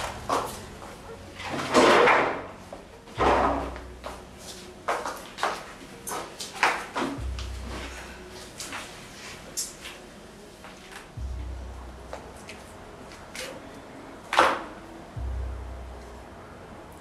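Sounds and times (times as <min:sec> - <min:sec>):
people scuffling: 0:00.0 - 0:01.8, 0:02.5 - 0:11.5.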